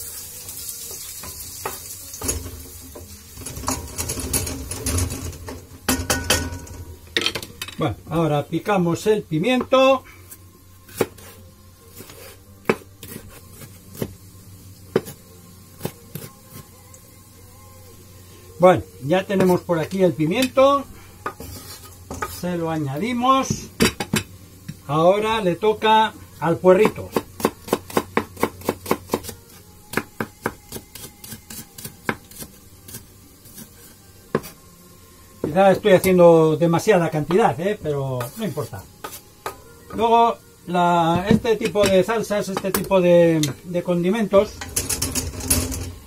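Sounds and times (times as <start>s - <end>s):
knife chopping on wooden board: 26.8s - 33.0s.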